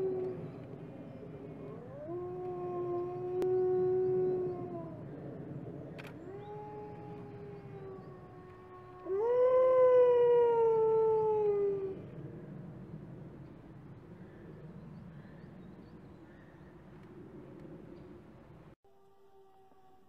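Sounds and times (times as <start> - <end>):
wolf howling: 1.6 - 5.0, 6.1 - 12.0.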